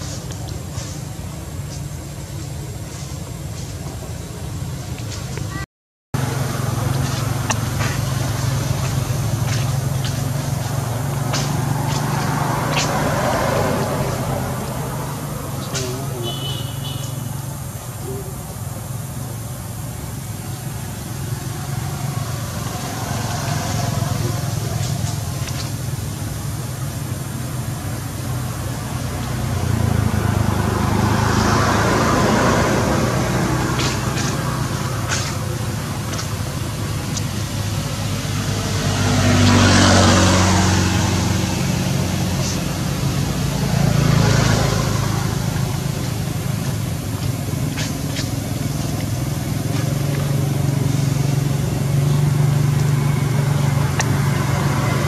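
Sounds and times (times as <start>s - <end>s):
faint background noise: 0.0s - 5.6s
low rumble of road traffic: 0.0s - 55.0s
vehicle passing: 6.2s - 55.0s.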